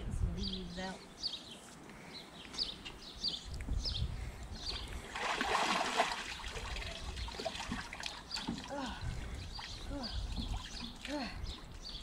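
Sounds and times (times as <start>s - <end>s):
water sloshing: 4.8s - 12.0s.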